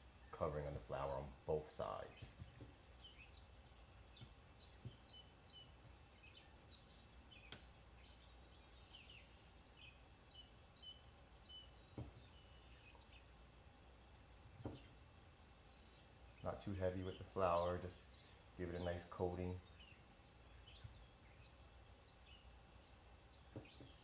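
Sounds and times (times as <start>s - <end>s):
small birds chirping: 0.0s - 24.0s
soft taps: 14.6s - 14.9s.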